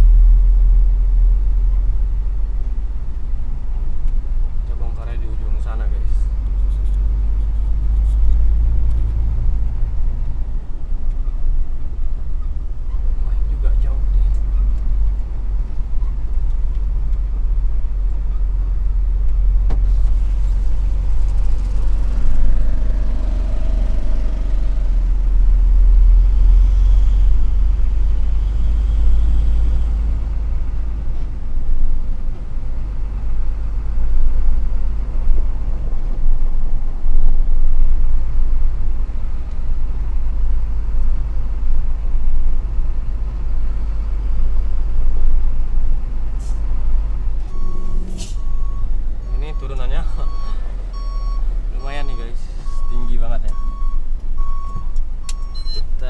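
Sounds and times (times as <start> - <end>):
truck rumbling on gravel: 0.0 - 37.1.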